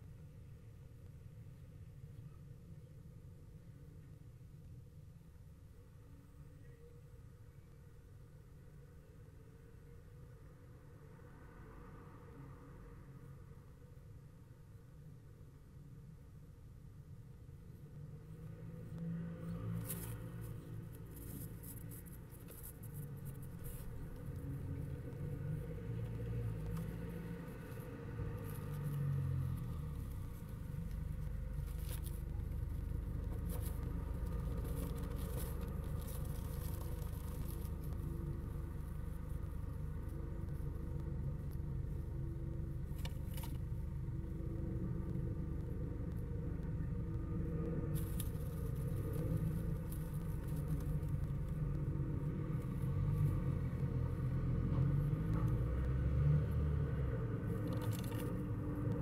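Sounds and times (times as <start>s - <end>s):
steady low rumble: 12.2s - 59.0s.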